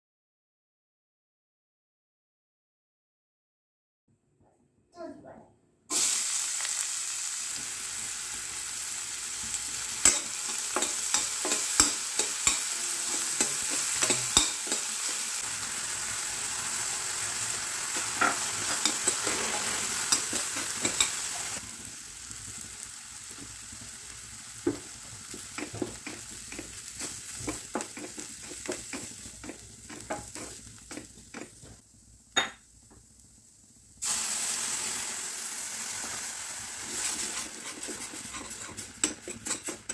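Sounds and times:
onion sizzling in hot oil: 0:05.9 - 0:39.9
spoon scraping a pan: 0:09.8 - 0:15.4, 0:17.9 - 0:21.6, 0:25.3 - 0:31.7, 0:36.9 - 0:39.9
spoon clacking against pan: 0:10.0 - 0:15.3, 0:18.0 - 0:19.4, 0:20.0 - 0:21.3, 0:24.7 - 0:31.5, 0:37.4 - 0:39.9.

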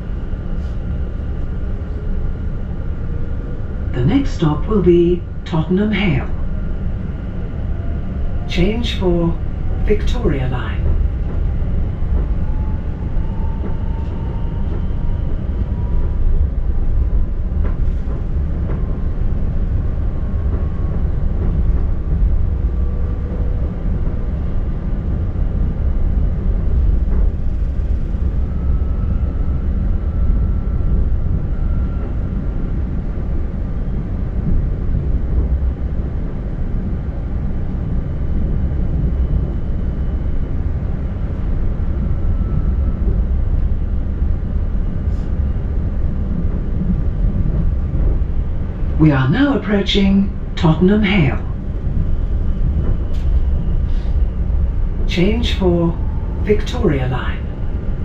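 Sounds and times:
train wheels rumbling on rail: 0:00.0 - 0:58.0
faint whining tones: 0:06.4 - 0:49.0, 0:51.5 - 0:58.0.

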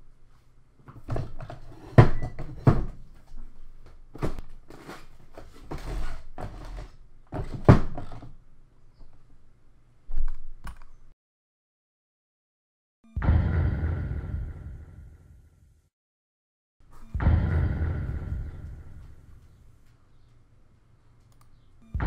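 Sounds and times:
knocks and thumps: 0:00.9 - 0:03.1.

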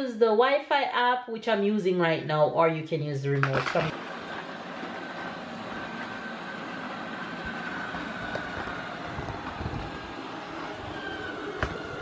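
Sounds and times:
robotic vacuum cleaner whirring: 0:03.4 - 0:12.0.

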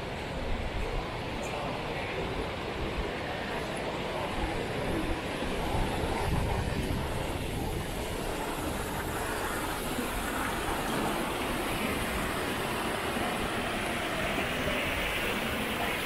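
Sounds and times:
waterfall rushing: 0:05.4 - 0:16.0.

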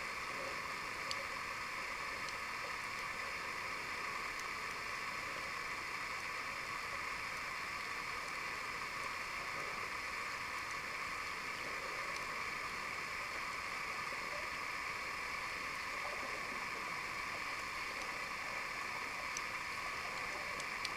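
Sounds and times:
muffled underwater hiss: 0:00.0 - 0:20.9
faint tiny clicks: 0:01.0 - 0:01.3, 0:02.2 - 0:03.1, 0:12.1 - 0:12.3, 0:19.2 - 0:20.9.

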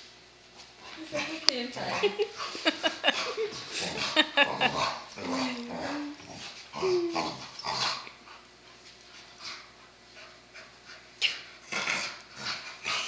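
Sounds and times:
dogs growling: 0:01.1 - 0:08.3, 0:11.6 - 0:13.0.

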